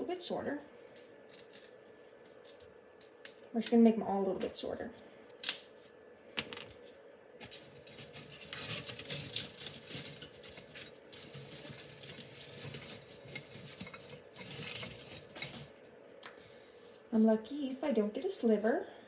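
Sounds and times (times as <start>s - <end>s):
dried stems rustling in glass vase: 7.5s - 15.9s.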